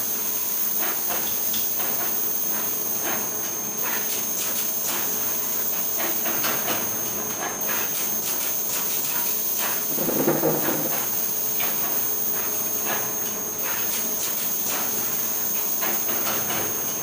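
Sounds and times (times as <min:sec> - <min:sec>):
dull rub or knock: 0:09.9 - 0:11.1.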